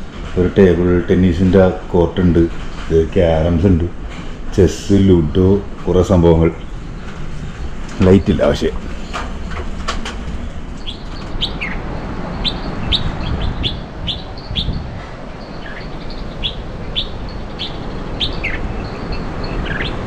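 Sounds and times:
wind rumble on microphone: 0:00.0 - 0:20.0
small bird chirping: 0:10.8 - 0:20.0.

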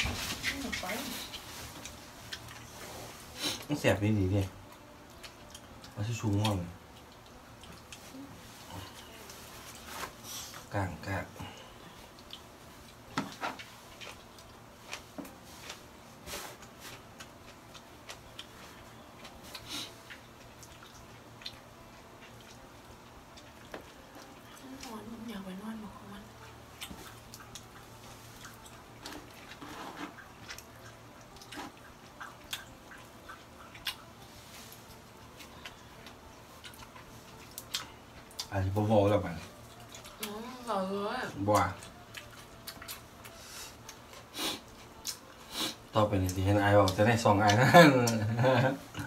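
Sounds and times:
steady low hum: 0:00.0 - 0:49.0
chewing smacks: 0:00.4 - 0:03.7, 0:04.6 - 0:10.2, 0:11.4 - 0:15.8, 0:16.6 - 0:25.0, 0:26.2 - 0:38.6, 0:39.4 - 0:40.4, 0:41.3 - 0:48.2.

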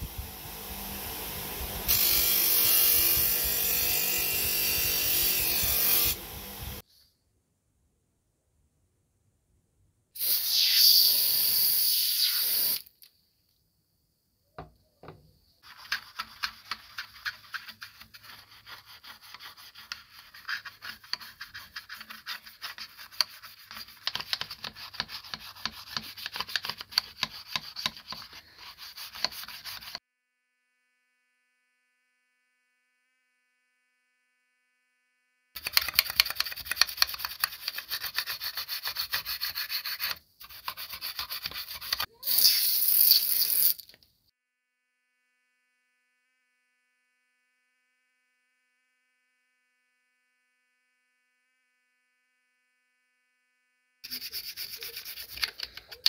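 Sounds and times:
toothbrush scrubbing metal: 0:15.6 - 0:30.0, 0:35.6 - 0:43.7, 0:54.0 - 0:56.0.

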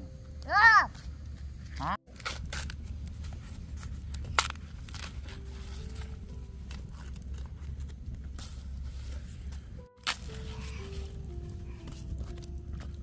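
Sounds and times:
corn husks tearing: 0:01.6 - 0:13.0
husk snapping: 0:04.1 - 0:05.3, 0:10.0 - 0:10.5.

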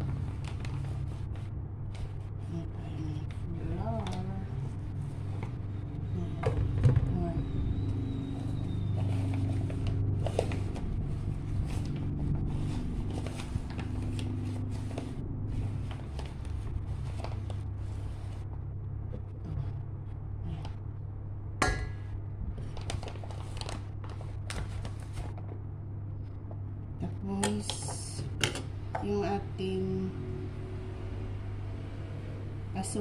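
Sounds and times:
steady low hum: 0:00.0 - 0:33.0
plastic bag rustling: 0:08.2 - 0:18.5, 0:22.5 - 0:25.6.

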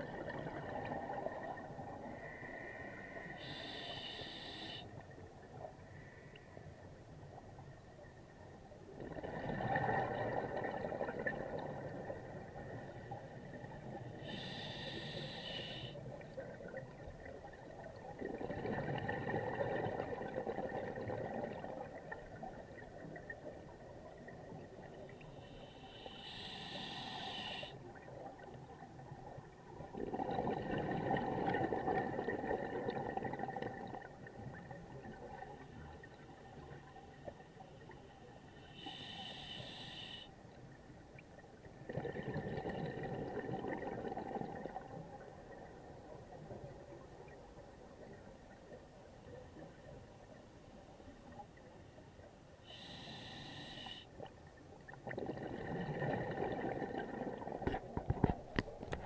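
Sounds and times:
regulator hiss on inhale: 0:02.2 - 0:05.0, 0:14.0 - 0:16.2, 0:25.2 - 0:27.9, 0:37.7 - 0:40.5, 0:52.6 - 0:54.3.

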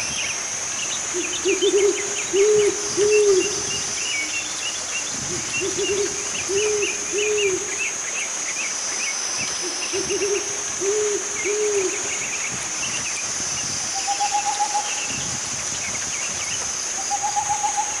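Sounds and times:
high insect drone: 0:00.0 - 0:18.0
owl hooting: 0:01.1 - 0:03.6, 0:05.3 - 0:07.8, 0:09.6 - 0:12.2, 0:17.0 - 0:18.0.

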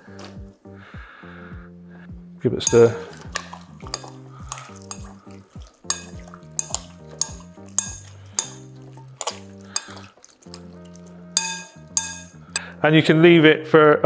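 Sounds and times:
background music with low chords: 0:00.0 - 0:14.0
spoon clinking against glass bowl: 0:02.6 - 0:12.4.

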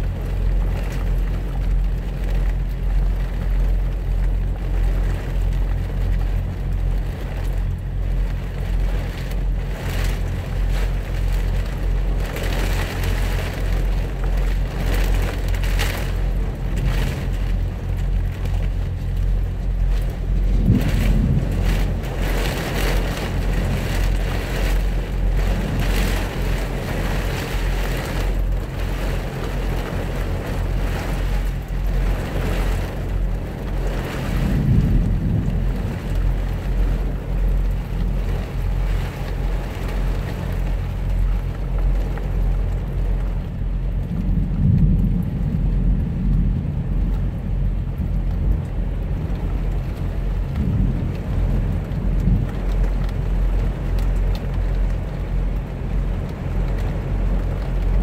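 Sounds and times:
heavy rain drumming on truck cab: 0:00.0 - 0:58.0
steady low hum: 0:00.0 - 0:58.0
rolling thunder: 0:19.7 - 0:27.3, 0:33.7 - 0:36.9, 0:44.0 - 0:53.0.

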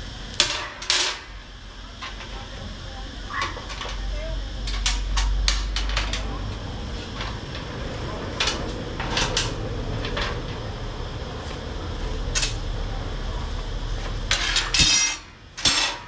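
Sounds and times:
steady low hum: 0:00.0 - 0:16.0
steel bars clanking: 0:14.3 - 0:16.0.

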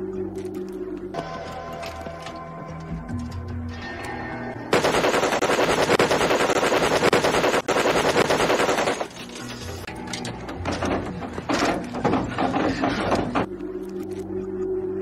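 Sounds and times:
heavy machine gun firing: 0:04.7 - 0:09.2.

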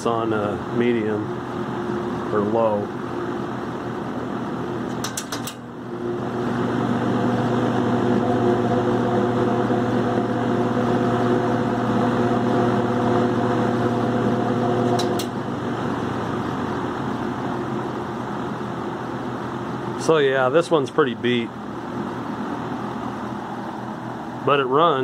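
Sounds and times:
box fan motor hum: 0:00.0 - 0:25.0
fan speed switch clicks: 0:04.9 - 0:05.7, 0:14.9 - 0:15.4.

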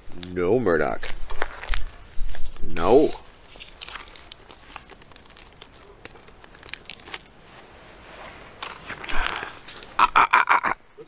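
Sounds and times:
foil pouch crinkling: 0:00.9 - 0:07.7.

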